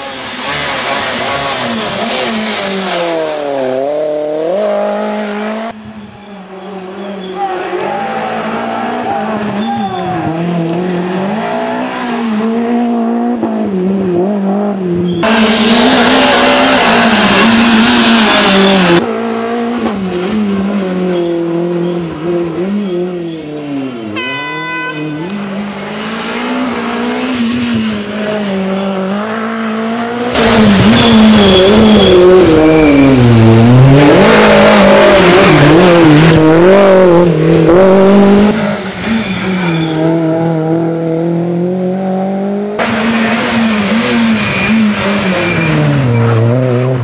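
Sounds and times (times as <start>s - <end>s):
loud rushing noise: 0.0s - 5.8s, 15.2s - 19.0s, 30.0s - 40.9s
rally car engine revving: 0.0s - 5.9s, 6.5s - 24.0s, 25.1s - 47.0s
short horn blast: 24.1s - 25.4s.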